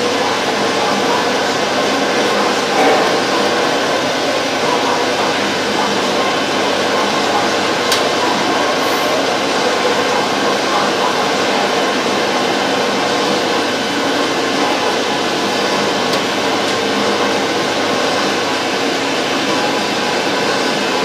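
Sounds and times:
boiler blower and flame rushing: 1.4 - 5.7.

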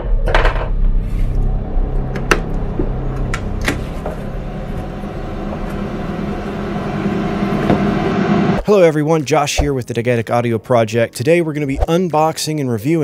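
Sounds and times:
steady low rumble: 0.6 - 8.6.

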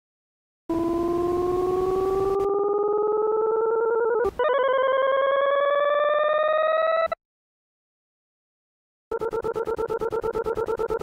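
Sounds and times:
buzzy electronic tone gliding up: 0.7 - 4.2.

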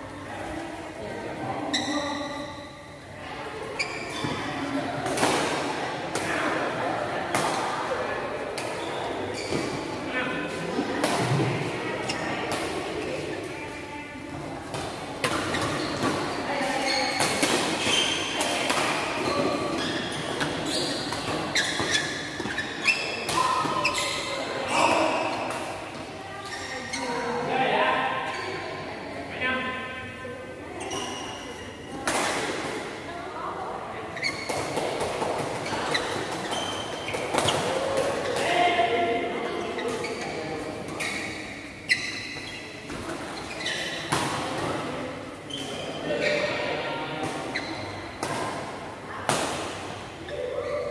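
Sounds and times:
shoes squeaking on court: 1.6 - 2.9, 3.6 - 4.7, 8.6 - 10.6, 14.8 - 27.2, 30.8 - 31.9, 34.1 - 38.4, 39.4 - 44.8, 45.4 - 46.6, 47.4 - 48.8.

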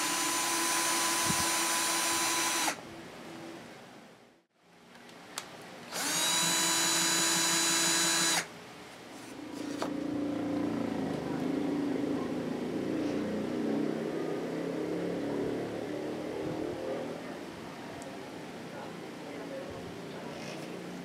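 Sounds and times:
cordless drill whining: 0.0 - 2.8, 5.9 - 8.5.

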